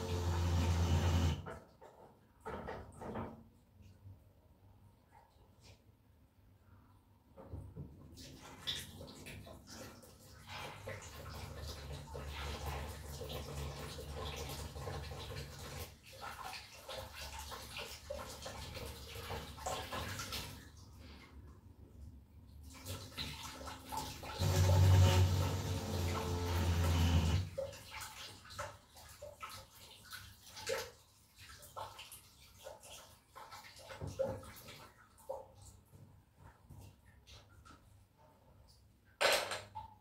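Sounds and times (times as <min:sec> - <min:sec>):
water running and splashing: 0:22.6 - 0:35.6.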